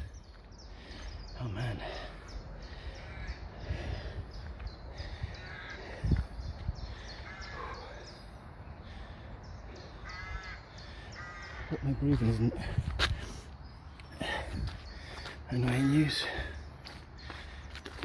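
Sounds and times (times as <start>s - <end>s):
crows cawing: 2.6s - 8.1s, 8.8s - 12.2s, 15.0s - 17.8s.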